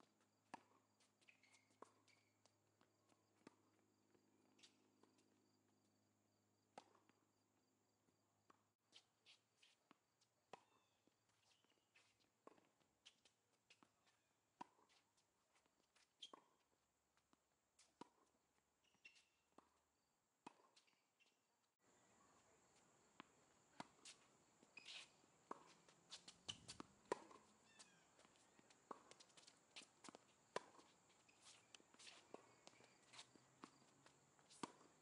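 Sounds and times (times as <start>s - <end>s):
tennis ball bounces: 10.5s - 11.0s, 13.7s - 15.0s, 20.4s - 21.0s, 22.3s - 35.0s
footfalls on hard court: 23.2s - 35.0s
racket striking tennis ball: 23.2s - 35.0s.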